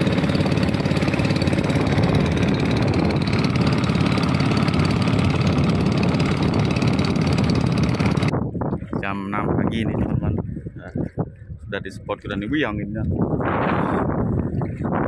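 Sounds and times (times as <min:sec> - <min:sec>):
boat engine running: 0:00.0 - 0:08.4.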